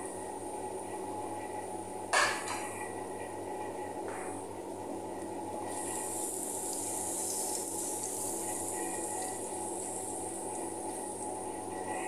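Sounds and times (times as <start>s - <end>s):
garlic sizzling in hot oil: 5.6s - 11.2s.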